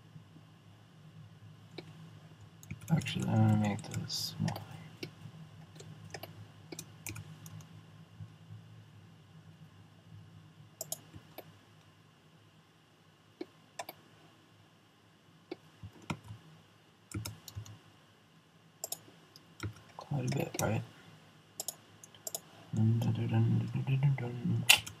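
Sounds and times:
faint low hum: 0.0 - 25.0
mouse and keyboard clicks: 21.6 - 23.1.

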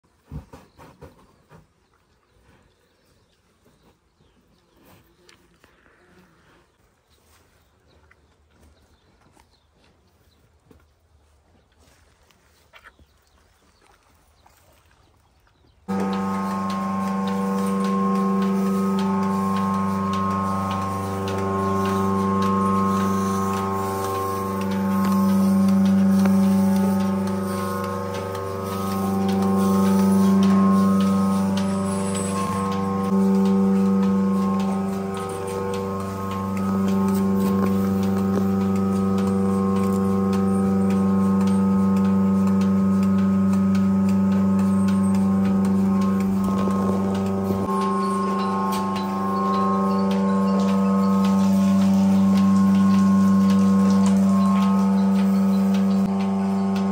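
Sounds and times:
milking pulsators clicking: 15.9 - 56.9
vacuum pump motor humming: 15.9 - 56.9.

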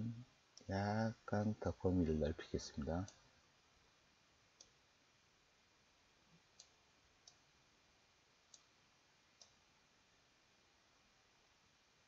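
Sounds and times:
low steady hiss: 0.0 - 12.0
computer mouse clicks: 4.6 - 4.8, 6.5 - 7.5, 8.5 - 8.7, 9.4 - 9.6.

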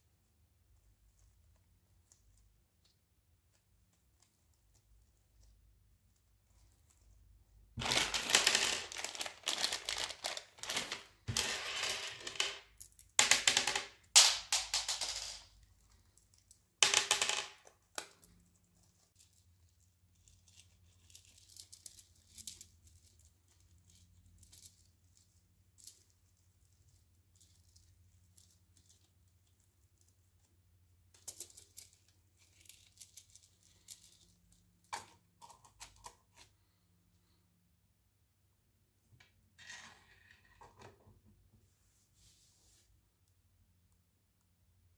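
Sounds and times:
candies clattering: 7.8 - 15.6.

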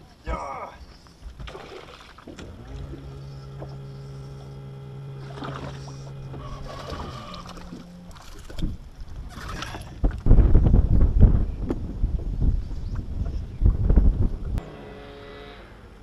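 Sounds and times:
electric trolling motor humming: 2.1 - 9.2, 14.6 - 16.0
higher-pitched hum: 2.3 - 9.2, 14.4 - 16.0.

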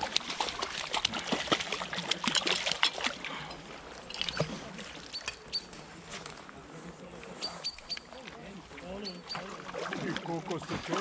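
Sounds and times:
fish splashing in water: 0.0 - 5.5, 8.9 - 11.0.

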